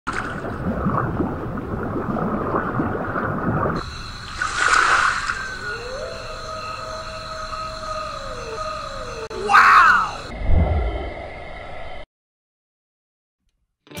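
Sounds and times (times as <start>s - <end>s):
bubbling and gurgling: 0.1s - 5.6s
rushing whoosh: 10.3s - 12.0s.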